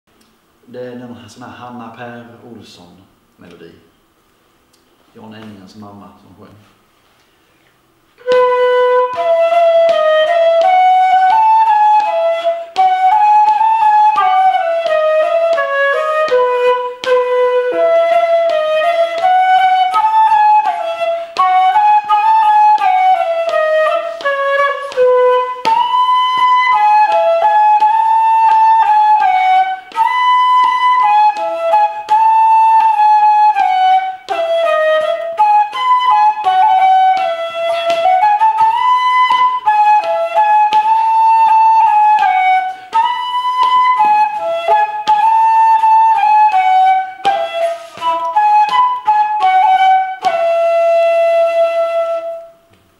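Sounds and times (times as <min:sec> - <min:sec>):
flute player breathing: 0:07.0 - 0:07.9, 0:21.0 - 0:21.5, 0:23.9 - 0:24.4, 0:42.4 - 0:43.2, 0:47.4 - 0:48.3
wooden flute melody: 0:08.1 - 0:52.9.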